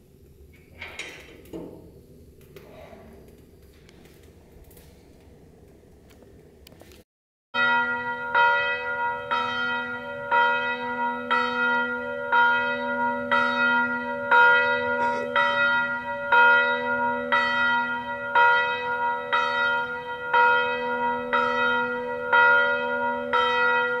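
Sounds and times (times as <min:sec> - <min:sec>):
church bell tolling: 0:07.6 - 0:24.0.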